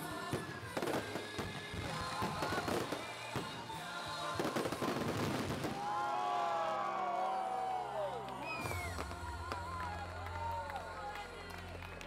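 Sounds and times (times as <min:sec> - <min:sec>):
fireworks bursting: 0:00.0 - 0:05.9
fireworks crackling: 0:00.0 - 0:05.9
background music: 0:00.0 - 0:12.0.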